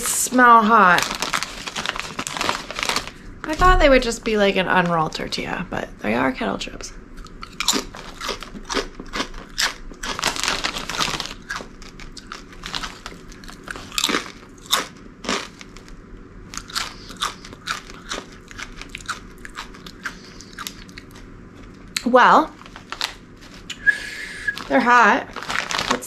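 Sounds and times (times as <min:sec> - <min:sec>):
chips being crunched and chewed: 0:00.7 - 0:03.2, 0:07.2 - 0:23.8, 0:24.6 - 0:26.0.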